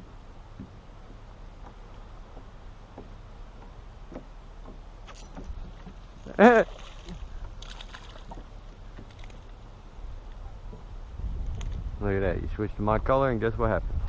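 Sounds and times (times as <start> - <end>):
gear knocking in boat: 0.0 - 9.5
low wind rumble: 0.0 - 14.0.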